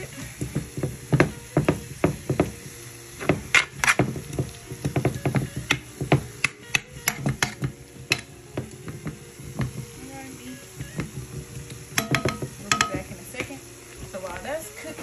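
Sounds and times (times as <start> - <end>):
metal spoon scraping a skillet: 3.2 - 9.0.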